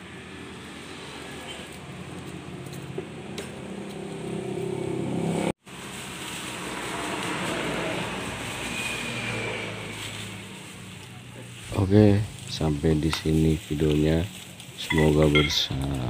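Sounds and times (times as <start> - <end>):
hissy rustling noise: 5.6 - 15.9.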